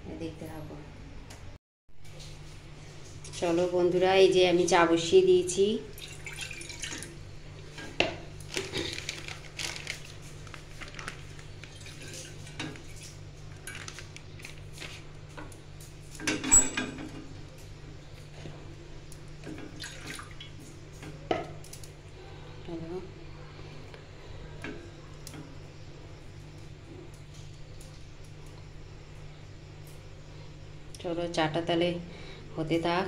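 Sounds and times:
low steady hum: 0.0s - 33.0s
liquid pouring into saucepan: 5.9s - 7.2s
pots and utensils clinking: 16.2s - 17.2s.

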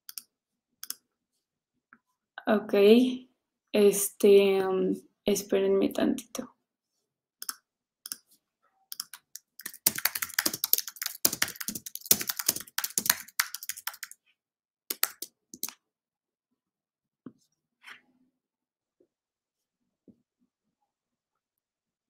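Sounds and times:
computer keyboard typing: 8.9s - 14.2s, 14.9s - 15.8s.

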